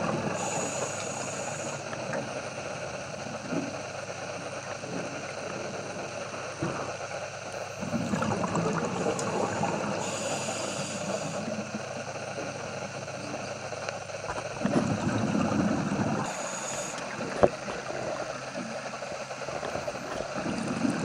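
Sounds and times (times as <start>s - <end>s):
underwater rush of water: 7.8s - 11.5s, 14.3s - 21.0s.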